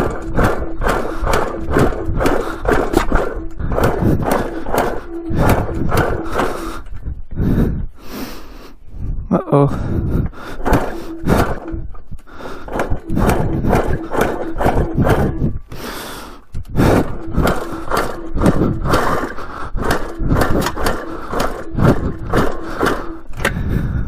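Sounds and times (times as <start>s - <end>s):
two-stroke engine firing and revving: 0.0s - 6.8s, 10.6s - 11.9s, 12.6s - 15.5s, 16.8s - 23.3s
engine being kicked over: 0.0s - 7.0s, 10.6s - 15.5s, 16.7s - 23.6s.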